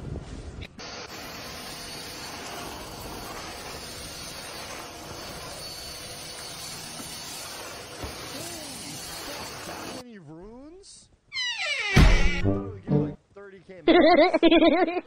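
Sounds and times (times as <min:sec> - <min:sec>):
stick vacuum cleaner running: 0:00.8 - 0:10.0.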